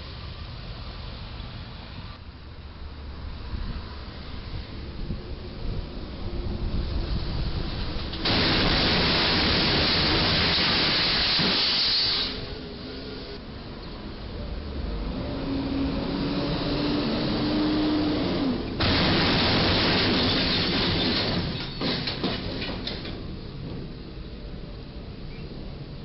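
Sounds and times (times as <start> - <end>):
traffic noise: 0.0 - 26.0
sharp cracks and knocks: 18.8 - 23.2.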